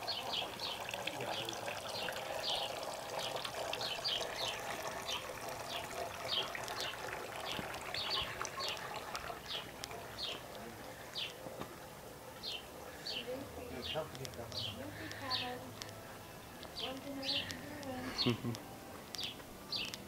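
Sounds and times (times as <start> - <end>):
fountain trickling: 0.0 - 15.8
small bird chirping: 12.4 - 15.8, 16.6 - 17.6, 19.1 - 20.0.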